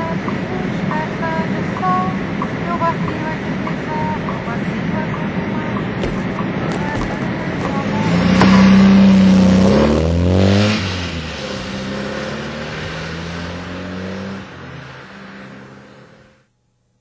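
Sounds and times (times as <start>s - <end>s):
machine motor humming: 2.2s - 9.4s.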